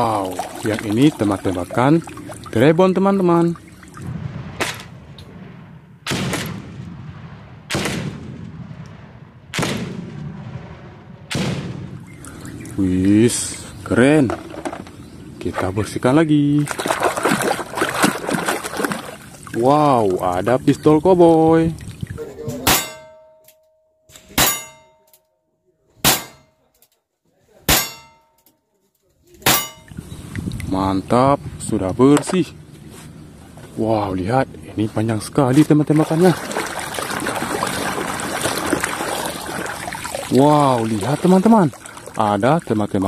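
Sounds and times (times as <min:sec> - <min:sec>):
grenade launcher firing bangs: 0:04.0 - 0:12.1, 0:26.0 - 0:26.5
steel plate clanging and ringing: 0:22.6 - 0:25.2, 0:26.0 - 0:26.7, 0:27.7 - 0:28.5, 0:29.5 - 0:30.0.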